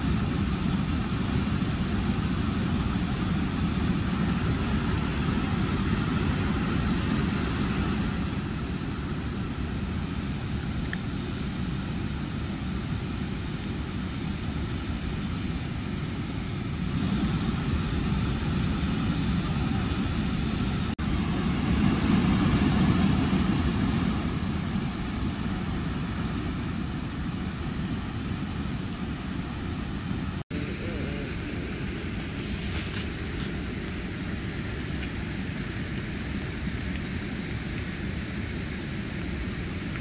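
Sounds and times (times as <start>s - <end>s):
river water rushing over a dam: 0.0s - 40.0s.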